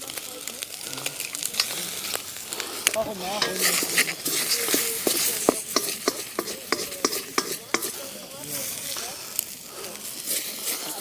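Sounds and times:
food sizzling in wok: 0.0s - 11.0s
spatula scraping wok: 1.1s - 11.0s
spatula knocking on wok: 3.4s - 8.0s.

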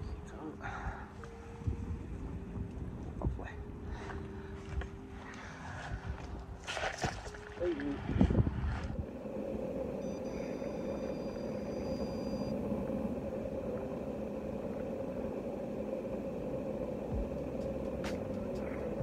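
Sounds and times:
motor humming: 8.1s - 19.0s
faint high steady tone: 9.2s - 19.0s.

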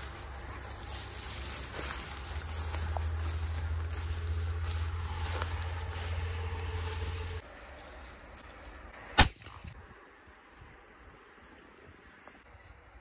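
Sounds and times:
low rumble: 0.0s - 7.6s.

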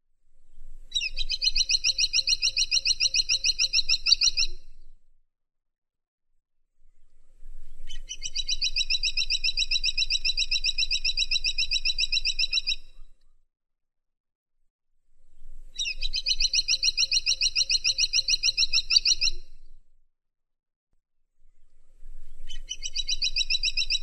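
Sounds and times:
woodpecker rapid high chirping: 1.0s - 4.5s, 15.8s - 19.4s.

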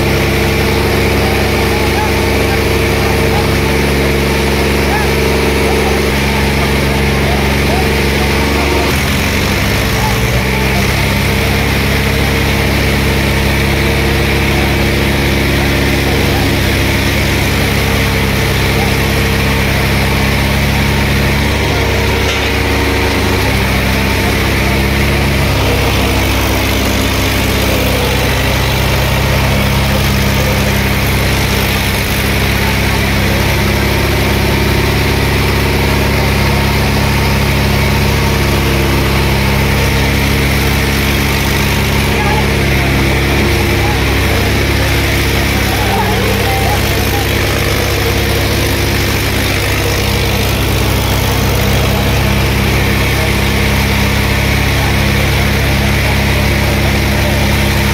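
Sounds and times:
diesel tractors revving under load: 0.0s - 57.9s
tyres spinning on road: 0.0s - 57.9s.

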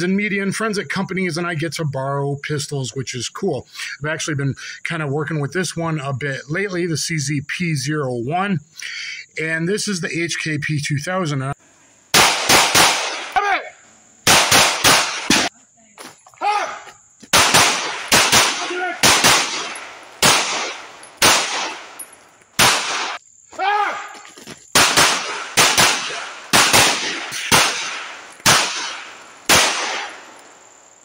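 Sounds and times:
pistol shots with echo: 12.1s - 13.4s, 14.3s - 15.5s, 17.3s - 22.0s, 22.6s - 23.2s, 24.8s - 30.4s.

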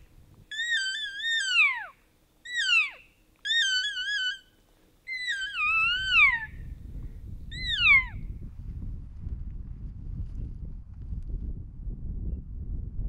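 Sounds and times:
elk mewing calls: 0.5s - 4.5s, 5.1s - 6.6s
low rumble: 8.2s - 13.0s.

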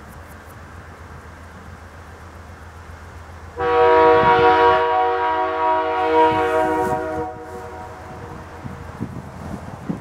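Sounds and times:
locomotive air horn blast: 3.6s - 8.8s.

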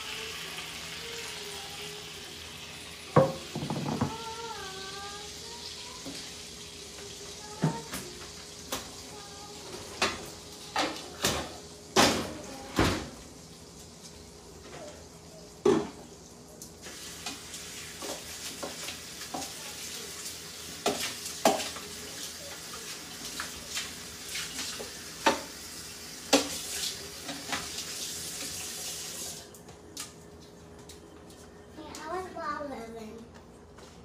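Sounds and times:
tap running into sink: 3.1s - 4.2s
dishes and pan clattering: 3.2s - 4.2s, 20.8s - 21.8s.

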